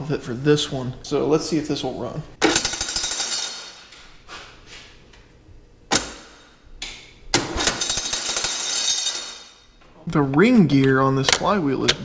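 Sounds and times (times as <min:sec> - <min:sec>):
sharp metal clank: 0:02.4 - 0:03.9, 0:07.4 - 0:09.7.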